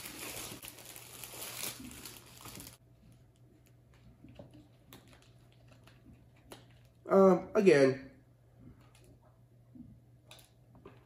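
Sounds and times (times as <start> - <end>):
plastic wrap crinkling: 0.0 - 7.1.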